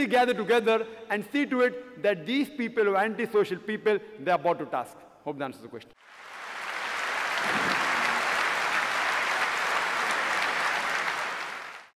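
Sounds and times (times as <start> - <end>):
audience applauding: 6.1 - 12.0.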